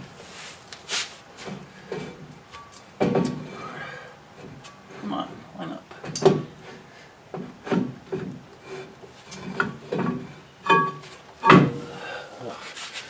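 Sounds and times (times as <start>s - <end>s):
metal scrapes and clunks: 6.0s - 11.9s.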